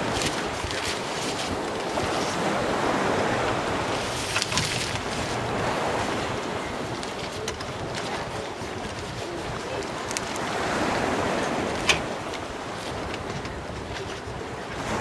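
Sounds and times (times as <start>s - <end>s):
nylon fabric rustling: 0.0s - 2.4s
wind rushing over microphone: 0.0s - 15.0s.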